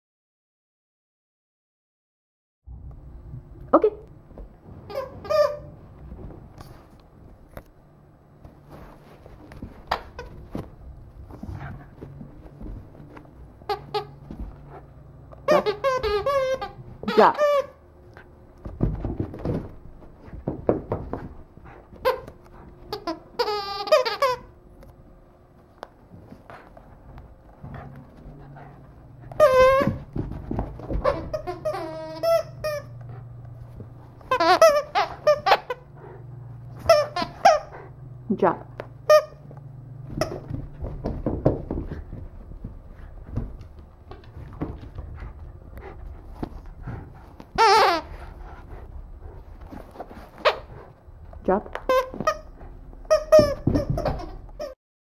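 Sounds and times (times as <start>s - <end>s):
dog toy squeaking: 4.9s - 5.8s, 15.5s - 17.8s, 22.9s - 24.5s, 29.3s - 30.1s, 31.0s - 33.0s, 34.2s - 35.8s, 36.8s - 37.7s, 47.6s - 48.2s, 51.8s - 52.5s, 53.1s - 54.8s
dog paws tapping: 18.2s - 24.9s, 25.5s - 35.7s, 38.6s - 46.7s
soft thumps of paws on carpet: 40.0s - 47.5s.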